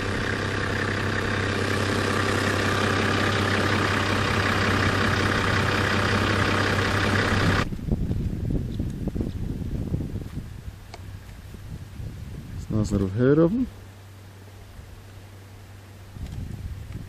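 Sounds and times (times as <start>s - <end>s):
vehicle engine running: 0.0s - 8.4s.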